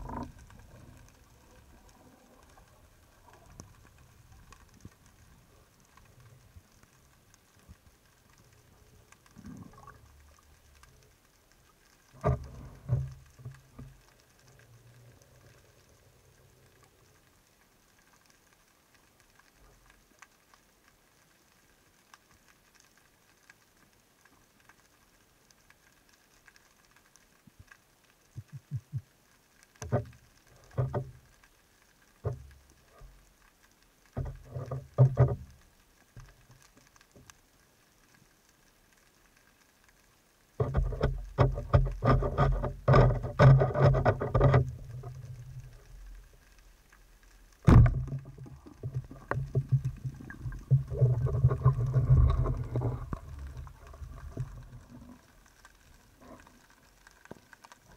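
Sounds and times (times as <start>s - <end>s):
muffled underwater knocks: 47.7s - 54.6s.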